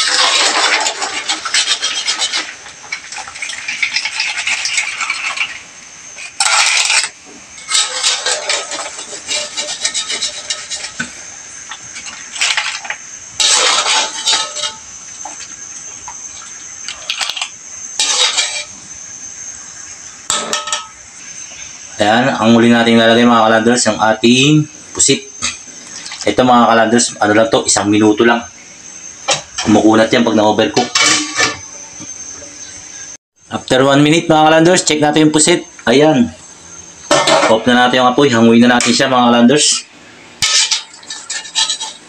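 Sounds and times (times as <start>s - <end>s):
utensils scraping a metal wok: 0.0s - 5.6s, 6.2s - 15.4s, 17.1s - 18.8s, 39.6s - 42.0s.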